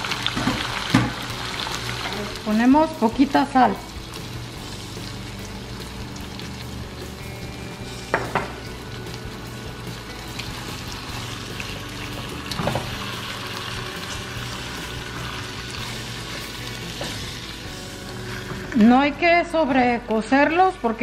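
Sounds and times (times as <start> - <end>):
shrimp sizzling in hot oil: 0.0 - 19.0
spatula knocking on pan: 8.1 - 8.6.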